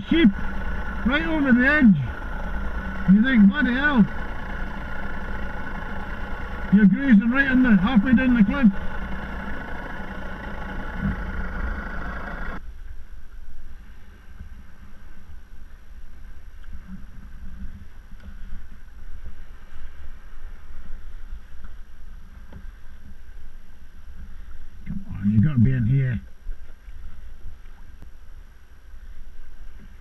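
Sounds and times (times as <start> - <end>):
wind rumble on microphone: 12.6 - 30.0.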